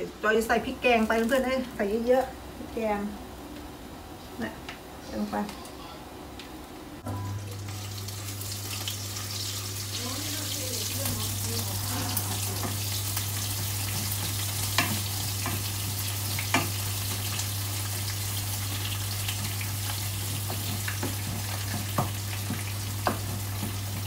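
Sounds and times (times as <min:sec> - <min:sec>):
paste sizzling in hot oil: 0:07.5 - 0:24.0
wooden spatula knocking on wok: 0:20.3 - 0:23.8.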